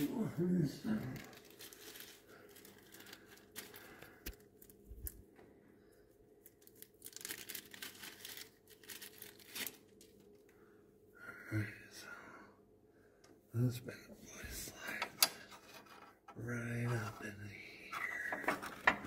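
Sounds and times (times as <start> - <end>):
crinkling and rustling: 0.8 - 5.5, 6.4 - 10.5, 18.3 - 19.0.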